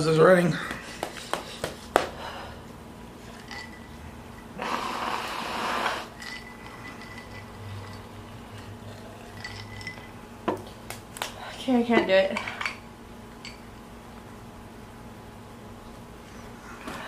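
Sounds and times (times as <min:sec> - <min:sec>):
woman blowing her nose: 0:04.6 - 0:06.2.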